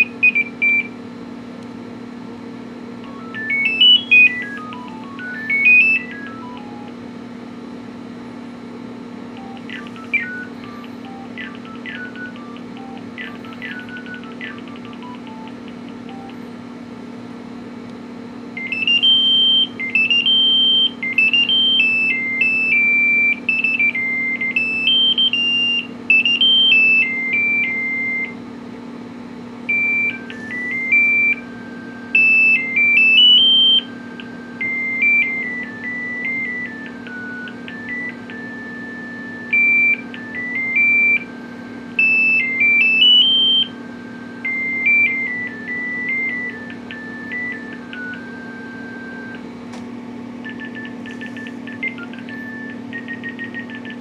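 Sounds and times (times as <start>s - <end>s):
monophonic phone ringtone melody: 3.0s - 7.1s, 9.3s - 16.5s, 18.6s - 28.3s, 29.7s - 49.4s, 50.4s - 54.0s.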